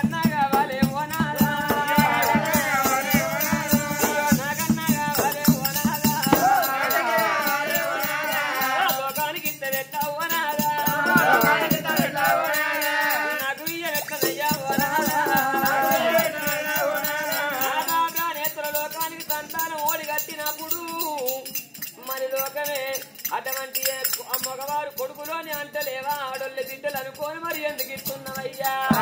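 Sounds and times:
jingling rattling percussion: 0:00.0 - 0:29.0
voices singing folk song: 0:00.0 - 0:29.0.

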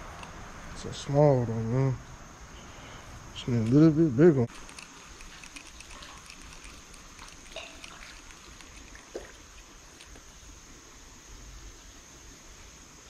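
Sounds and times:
high insect drone: 0:00.0 - 0:13.0
trickle of water: 0:04.5 - 0:11.6.

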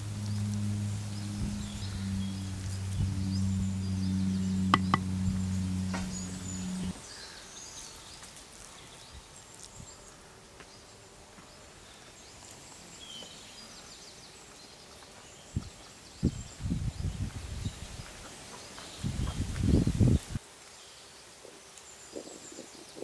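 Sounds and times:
low musical drone: 0:00.0 - 0:07.1
bird chirps: 0:00.0 - 0:07.8
insect chirps: 0:00.0 - 0:10.2
soft knocks: 0:04.8 - 0:05.1.

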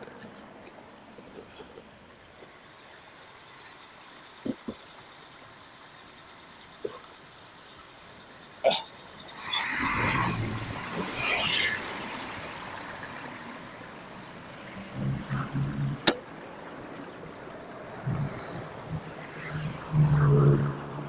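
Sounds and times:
street traffic: 0:00.0 - 0:21.0
wind noise on microphone: 0:18.0 - 0:19.1.

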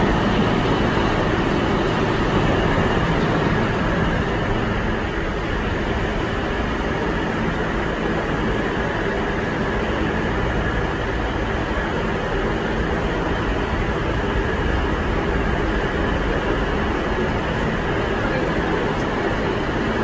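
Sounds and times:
subway train rumbling: 0:00.0 - 0:20.0.

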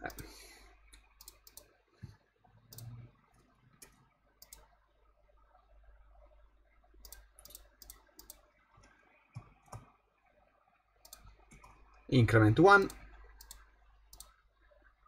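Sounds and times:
computer mouse clicks: 0:00.0 - 0:00.3, 0:00.9 - 0:01.8, 0:02.7 - 0:03.1, 0:03.8 - 0:04.7, 0:07.0 - 0:09.9, 0:11.0 - 0:12.0, 0:12.8 - 0:14.4.

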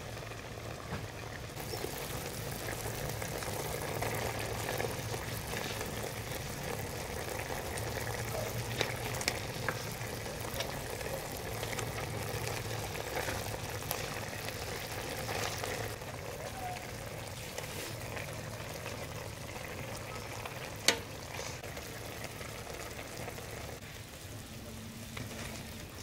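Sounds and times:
food bubbling in a pot: 0:00.0 - 0:26.0
wooden spoon stirring: 0:07.5 - 0:16.0.

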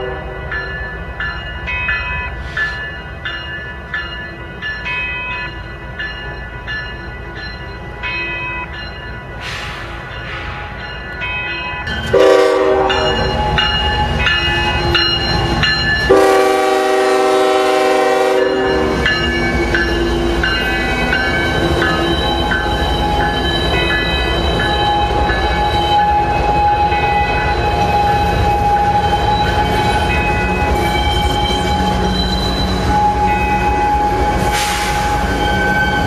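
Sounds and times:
locomotive air horn: 0:00.0 - 0:00.4, 0:12.1 - 0:13.2, 0:16.1 - 0:19.0
locomotive bell ringing: 0:00.0 - 0:36.0
rolling train wheels: 0:00.0 - 0:36.0
diesel engines: 0:11.9 - 0:36.0.

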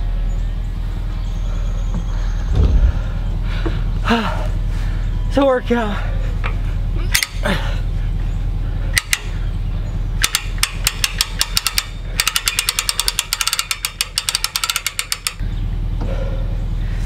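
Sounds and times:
low hum: 0:00.0 - 0:17.0
winch ratchet clicking: 0:07.1 - 0:07.4, 0:08.9 - 0:09.4, 0:10.2 - 0:15.4.

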